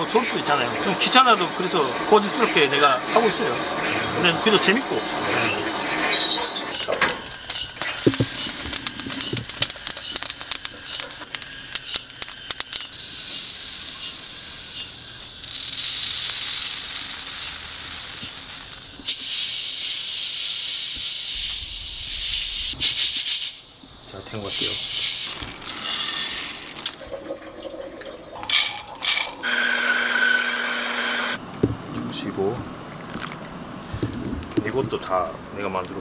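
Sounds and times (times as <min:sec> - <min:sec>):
coffee beans poured into sieve: 0:24.5 - 0:27.0.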